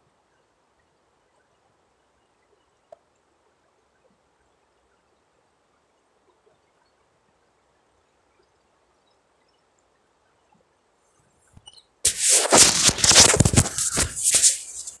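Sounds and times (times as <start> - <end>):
scratchy rustling on microphone: 12.0 - 15.0.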